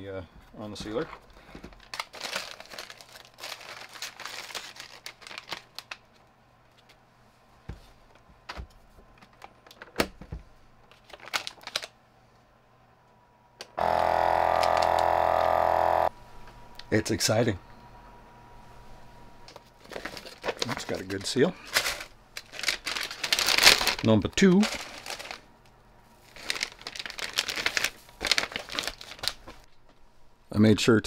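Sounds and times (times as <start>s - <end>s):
plastic bag crinkling: 1.7s - 6.2s, 10.9s - 11.9s, 19.8s - 25.5s, 26.2s - 29.8s
vacuum pump humming: 13.8s - 16.1s.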